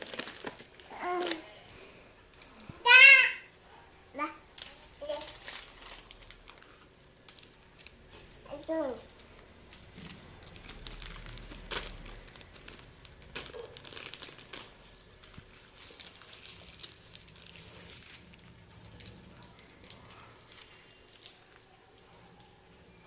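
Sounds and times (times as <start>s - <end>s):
wrappers and bag rustling: 0.0s - 1.7s, 2.8s - 23.0s.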